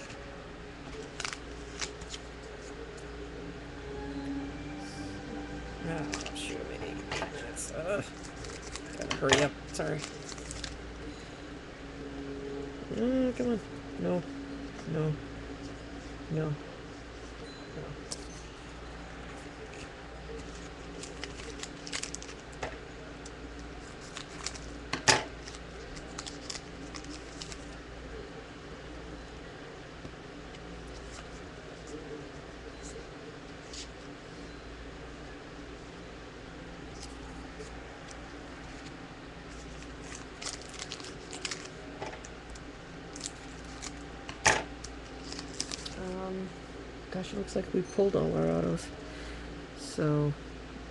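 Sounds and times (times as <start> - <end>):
foil wrapper crinkling: 0.8 - 2.8, 7.3 - 10.9, 19.5 - 27.8, 36.9 - 46.2
cards clicking and rustling: 0.8 - 3.0, 8.1 - 10.8, 19.6 - 27.8, 36.9 - 46.1
sharp foil crackle: 0.9 - 2.6, 7.9 - 10.8, 19.7 - 22.7, 23.6 - 27.8, 39.5 - 46.2.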